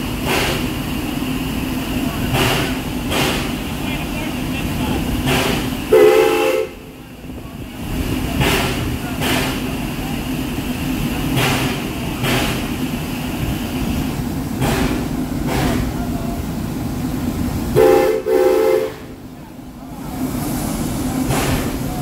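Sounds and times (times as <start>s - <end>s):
steam locomotive hissing: 0.0s - 22.0s
steam whistle blast: 5.9s - 6.8s, 17.8s - 19.1s.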